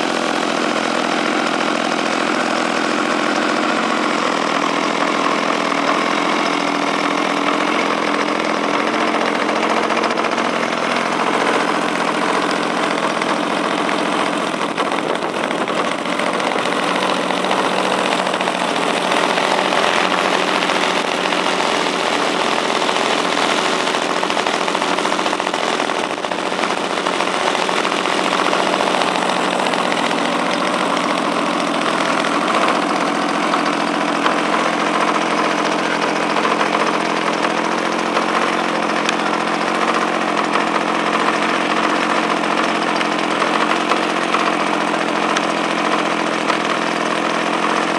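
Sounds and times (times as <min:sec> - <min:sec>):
two-stroke engine with propeller running: 0:00.0 - 0:47.9.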